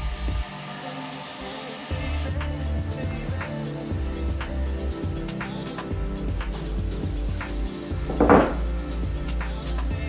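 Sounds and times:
background music with steady beat: 0.0 - 10.0
wooden board knock and scrape: 8.1 - 8.7.

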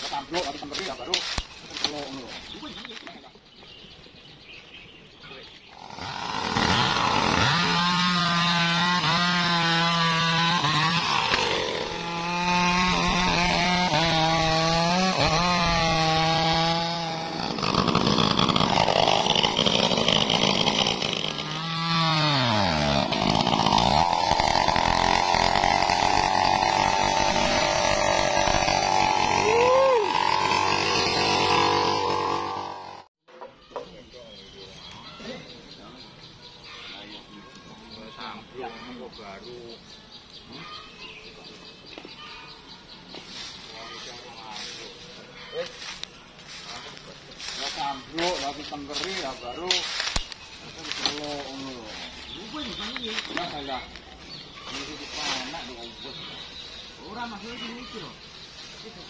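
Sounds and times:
chainsaw running: 5.7 - 33.1, 47.4 - 56.0.

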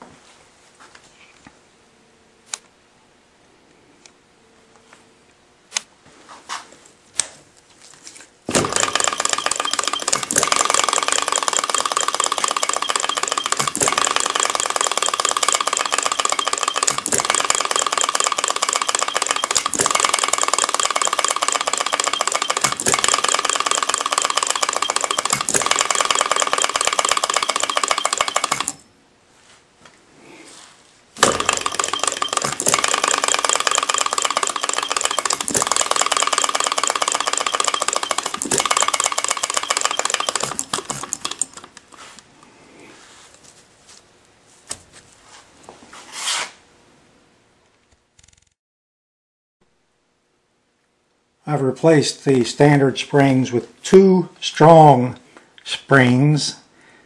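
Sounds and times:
model engine rapid clatter: 8.6 - 28.8, 31.2 - 41.6.

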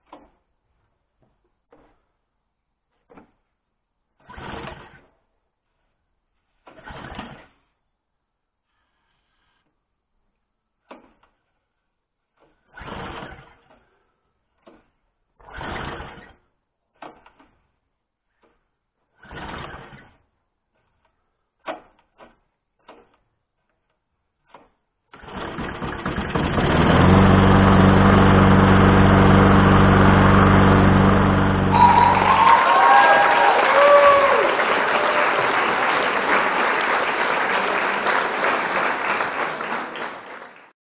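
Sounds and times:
recoil starter pulls: 25.1 - 30.3
lawn mower engine running: 26.0 - 31.8.

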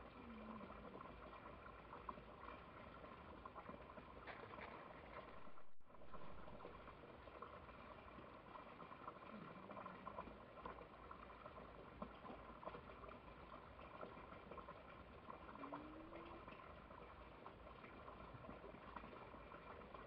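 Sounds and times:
faint crackling noise: 0.0 - 20.0.

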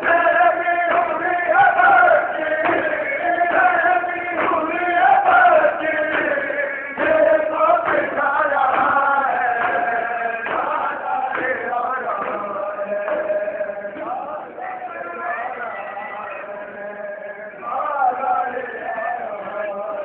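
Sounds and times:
crowd chanting along: 0.0 - 20.0
men chanting a lament: 0.0 - 20.0
hands slapping chests: 6.1 - 12.5.

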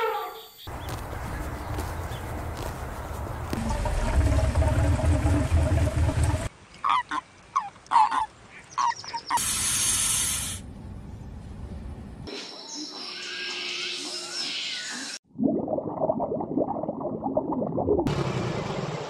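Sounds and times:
snake hissing: 9.4 - 10.6.

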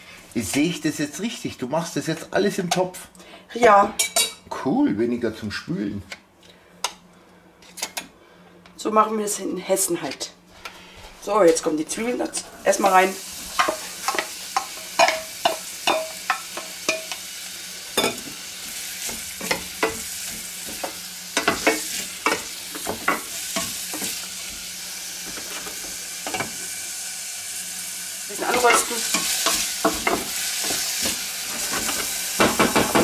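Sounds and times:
onions sizzling in butter: 11.3 - 33.0
wooden spatula knocking on pot: 32.4 - 33.0.

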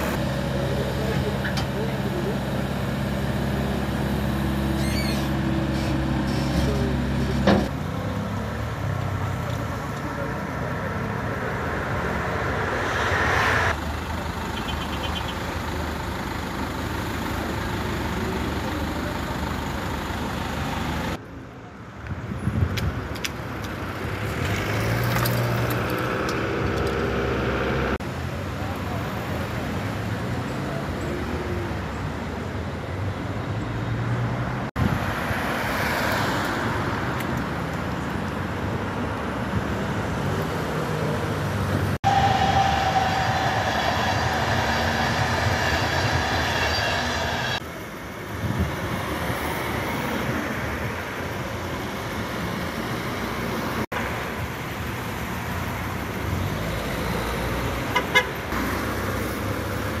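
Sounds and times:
road traffic passing: 0.0 - 60.0
long car horn: 42.0 - 47.2, 57.9 - 58.4.

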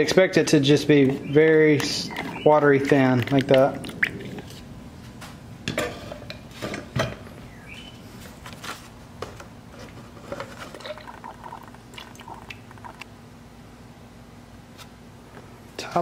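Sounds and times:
paint pouring through strainer: 10.7 - 13.0.

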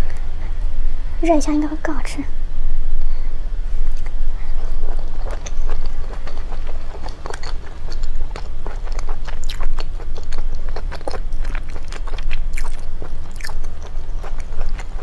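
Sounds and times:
person chewing: 3.9 - 15.0.

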